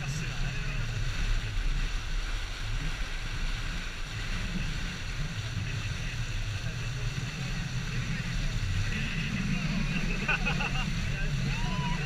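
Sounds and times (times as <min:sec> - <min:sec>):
water spraying: 0:00.0 - 0:12.0
wind buffeting microphone: 0:00.0 - 0:12.0.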